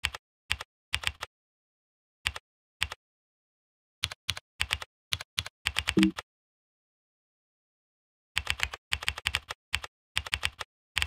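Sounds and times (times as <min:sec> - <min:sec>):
computer keyboard keys clicking: 0:00.0 - 0:01.3, 0:04.0 - 0:06.2, 0:08.4 - 0:11.0.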